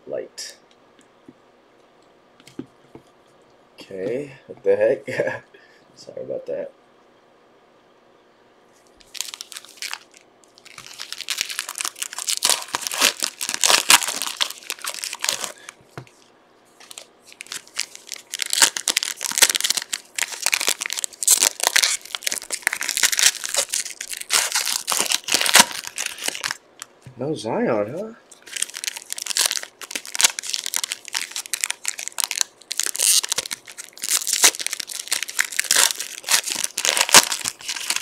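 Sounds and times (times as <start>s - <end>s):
card pack wrappers tearing and crinkling: 9.0s - 15.8s, 16.8s - 26.6s, 28.3s - 38.0s.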